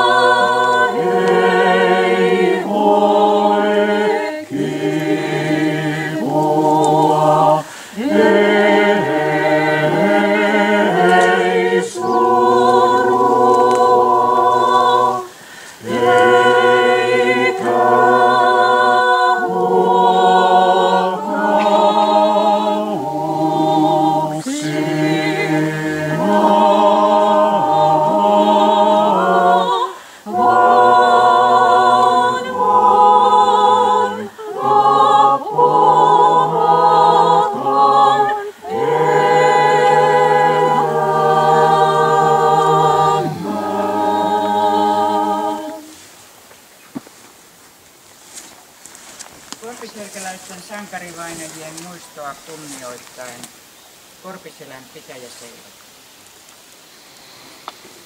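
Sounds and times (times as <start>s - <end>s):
voices chanting in harmony: 0.0s - 46.4s
singers breathing: 7.6s - 8.0s, 15.2s - 15.9s, 29.9s - 30.3s.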